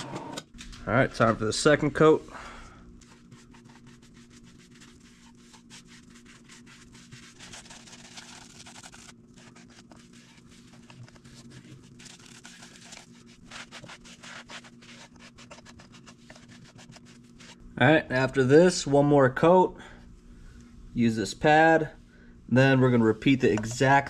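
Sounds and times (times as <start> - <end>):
cloth rubbing on wood: 3.0 - 17.6.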